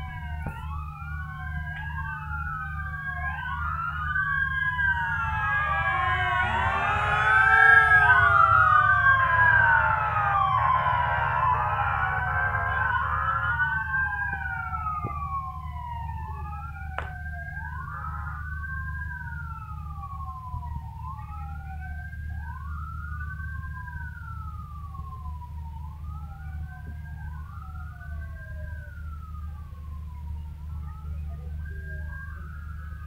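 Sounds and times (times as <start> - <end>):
police sirens wailing: 0.0 - 33.0.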